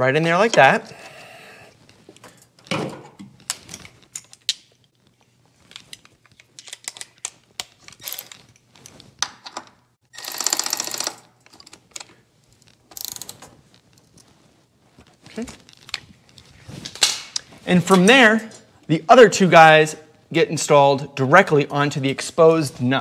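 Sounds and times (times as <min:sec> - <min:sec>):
metal parts clicking and knocking: 0:05.7 - 0:13.5
cordless ratchet running: 0:10.2 - 0:11.2, 0:12.9 - 0:13.3.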